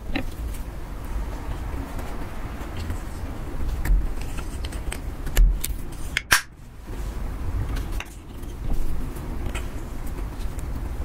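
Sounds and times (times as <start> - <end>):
plastic spatula scraping makeup: 3.8 - 6.2.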